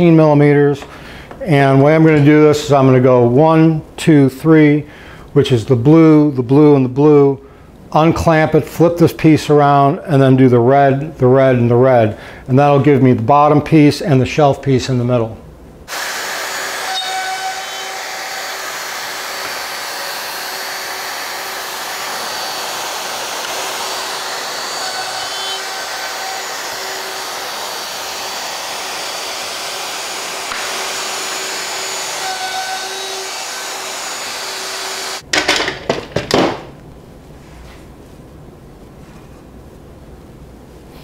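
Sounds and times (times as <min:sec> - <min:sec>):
plunge router running: 0:15.9 - 0:35.2
loud knocks and clatter: 0:35.3 - 0:36.8.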